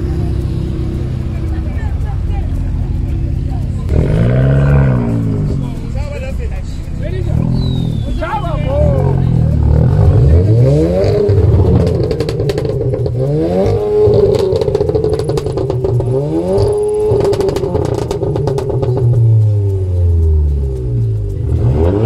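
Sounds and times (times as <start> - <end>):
car engine revving: 0.0 - 22.0
exhaust crackles: 0.0 - 22.0.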